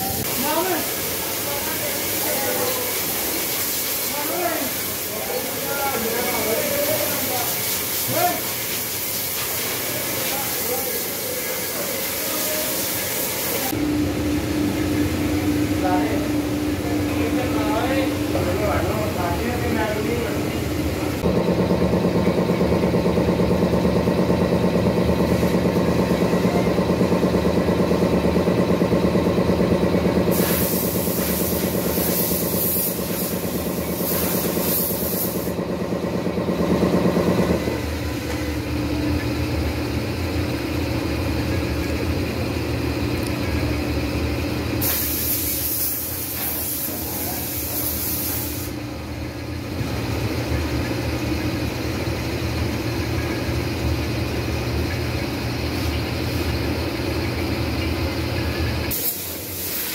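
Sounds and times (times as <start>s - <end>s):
loud hissing: 0.0s - 13.8s, 30.3s - 35.6s
factory machinery hum: 0.0s - 59.9s.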